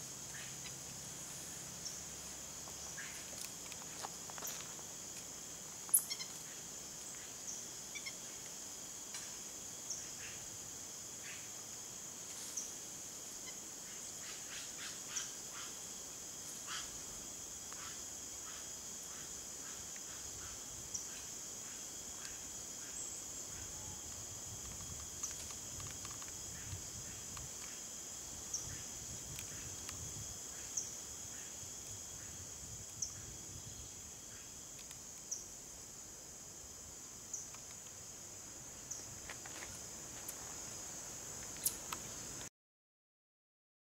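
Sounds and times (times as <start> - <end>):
high-pitched insect shrill: 5.9 - 6.4.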